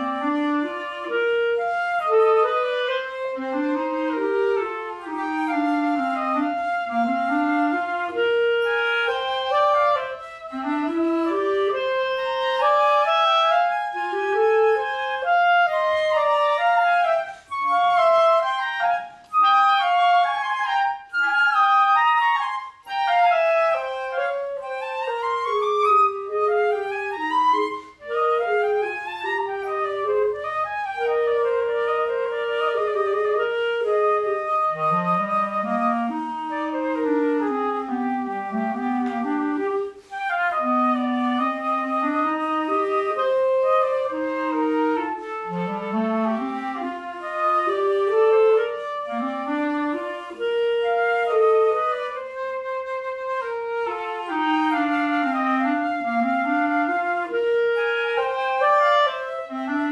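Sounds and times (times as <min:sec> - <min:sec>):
clarinet playing: 0:00.0 - 0:59.9
flute playing: 0:00.0 - 0:59.9.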